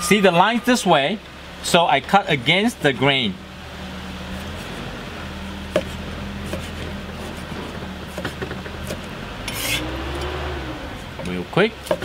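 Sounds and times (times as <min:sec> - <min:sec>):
steady low hum: 0:00.0 - 0:12.0
knife striking wooden cutting board: 0:05.7 - 0:06.8.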